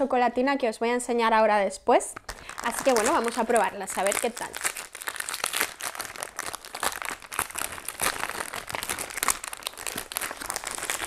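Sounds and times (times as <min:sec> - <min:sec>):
wrapper crinkling: 0:02.2 - 0:11.0.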